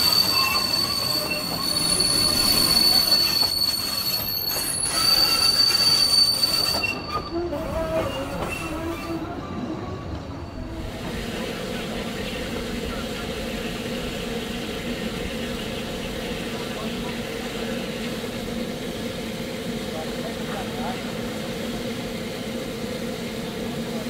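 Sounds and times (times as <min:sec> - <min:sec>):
wheel flanges squealing on rails: 0:00.0 - 0:24.0
steam locomotive low hum: 0:07.0 - 0:24.0.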